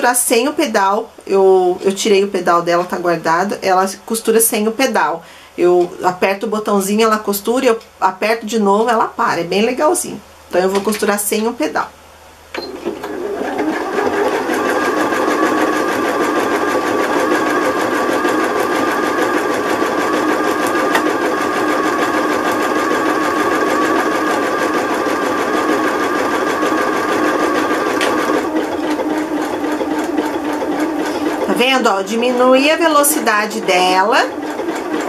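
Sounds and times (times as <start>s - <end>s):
sewing machine running: 12.6s - 35.0s.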